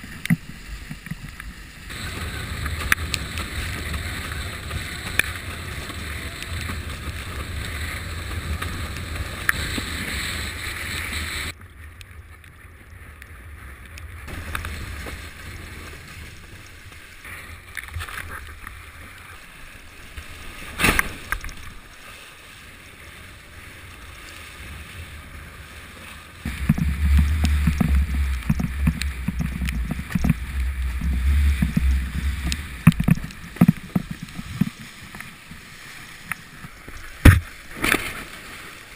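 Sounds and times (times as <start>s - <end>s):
water rushing and splashing: 0.0s - 38.9s
wind buffeting microphone: 1.9s - 11.5s, 26.4s - 34.9s.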